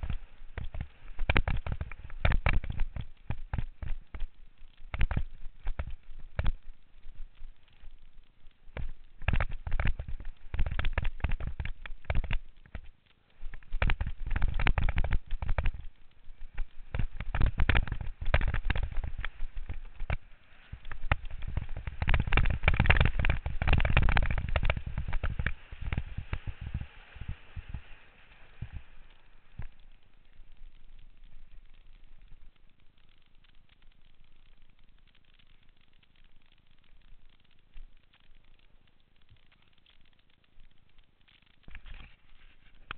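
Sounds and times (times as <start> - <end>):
mountain bike rattling over dirt: 0.0 - 31.6
faint hiss: 0.0 - 42.9.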